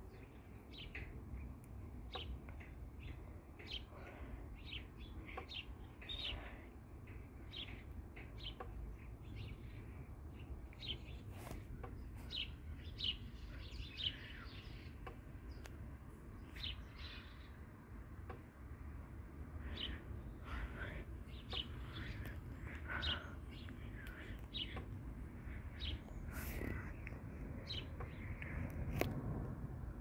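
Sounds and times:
small birds chirping: 0.0 - 29.1
low rumble: 20.0 - 30.0.

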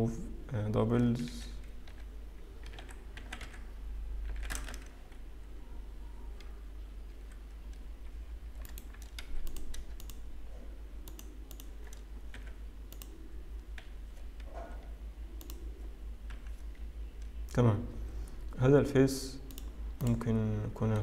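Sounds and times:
low electrical hum: 0.0 - 21.0
keyboard keystrokes: 1.6 - 5.2, 8.6 - 10.2, 11.0 - 14.5, 15.4 - 17.4.

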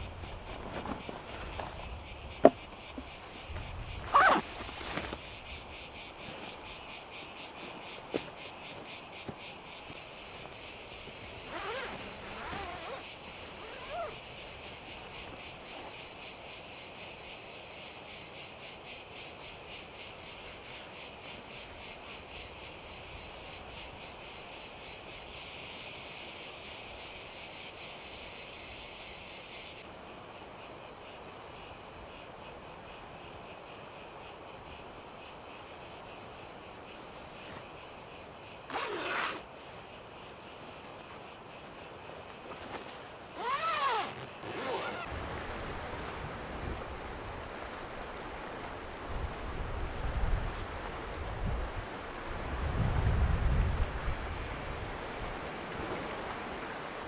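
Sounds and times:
hammock fabric rustling: 0.0 - 16.0, 36.8 - 45.2
insects buzzing chorus: 0.0 - 57.0.

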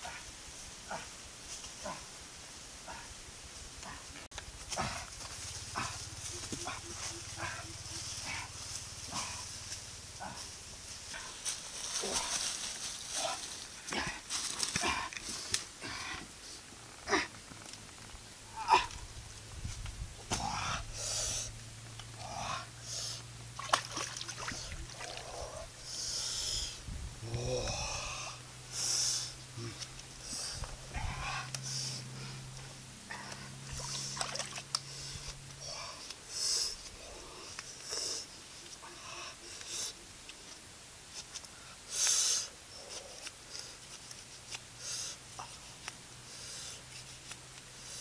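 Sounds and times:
man breathing hard: 13.9 - 16.6, 20.3 - 21.6, 22.2 - 23.3, 24.5 - 40.0, 46.2 - 46.9
man grunting: 27.2 - 28.4, 29.6 - 29.8.

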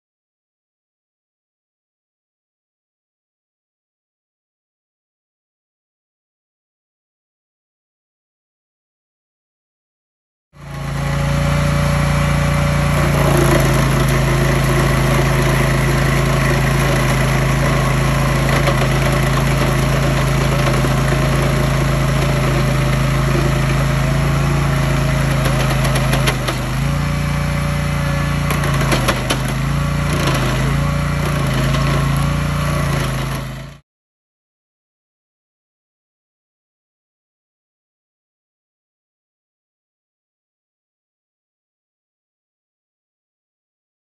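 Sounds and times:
cutting wheel grinding stump: 10.6 - 33.8
stump grinder engine running: 10.6 - 33.8.

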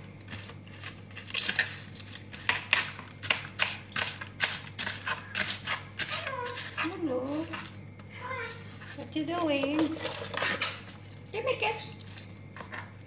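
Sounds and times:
knife chopping on cutting board: 2.4 - 6.8.

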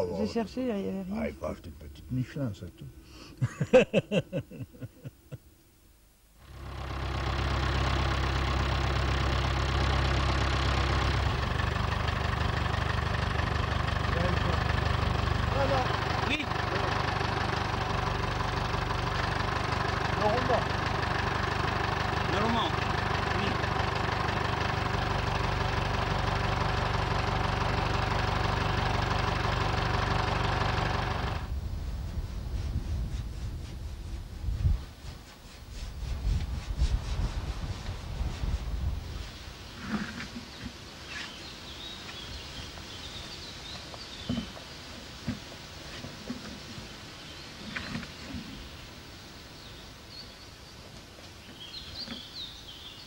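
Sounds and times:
laughter: 3.4 - 5.5
engine idling: 6.4 - 32.9.

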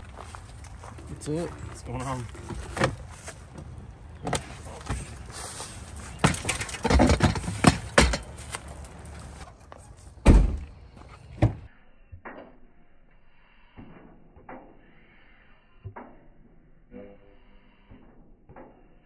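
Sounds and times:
bike frame clanking and rattling: 1.6 - 11.4
loud thump: 10.2 - 10.7.

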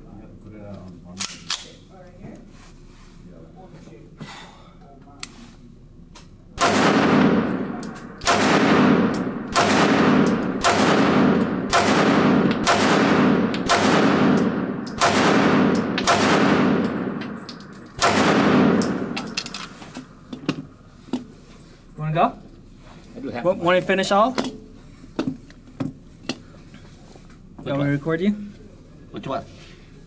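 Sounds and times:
pistol shots echoing indoors: 6.6 - 19.6.

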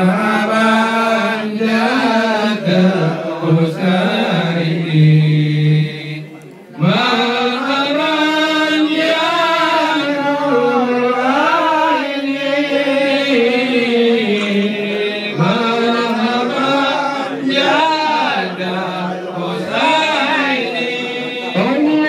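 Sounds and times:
voices chanting together: 0.0 - 22.0.

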